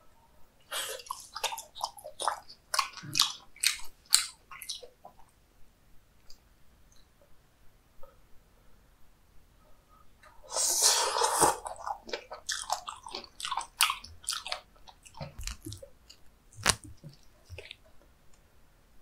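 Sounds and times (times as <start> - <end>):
chewing with wet clicks: 1.0 - 5.3, 11.6 - 17.9
wet slurping bite: 10.5 - 15.8.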